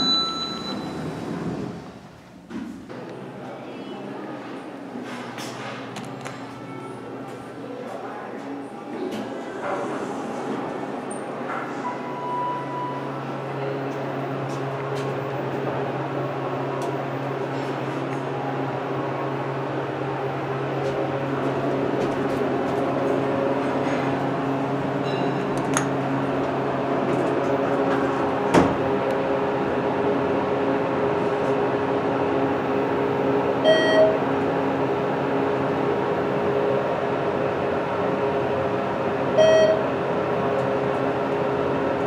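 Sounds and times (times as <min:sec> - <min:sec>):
elevator chime tones: 0:00.0 - 0:01.3, 0:11.8 - 0:13.2, 0:33.6 - 0:34.3, 0:39.4 - 0:40.0
elevator pump motor humming: 0:18.2 - 0:42.0.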